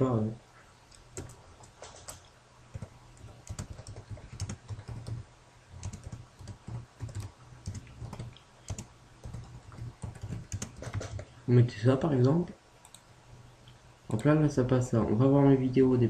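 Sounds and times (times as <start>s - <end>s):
typing on computer keyboard: 1.2s - 5.2s, 5.8s - 11.3s.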